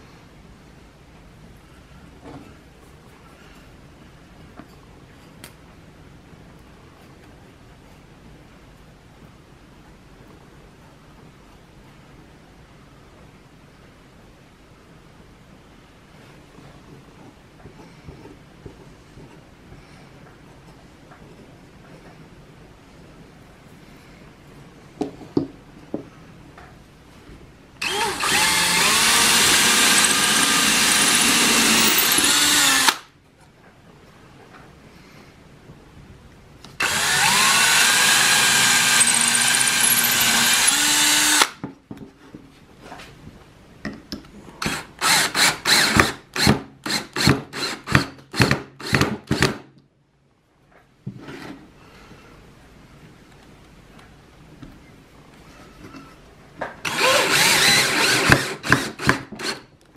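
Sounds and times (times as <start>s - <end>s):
power drill boring wood: 27.8s - 33.0s, 36.8s - 41.6s, 44.6s - 48.0s, 56.9s - 59.6s.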